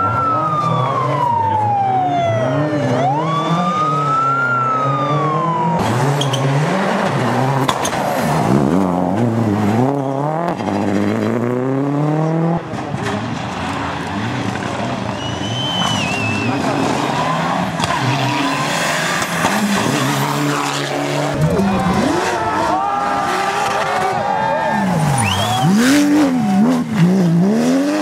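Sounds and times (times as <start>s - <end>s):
siren wailing: 0.0s - 5.9s
rally car engine revving: 2.3s - 28.0s.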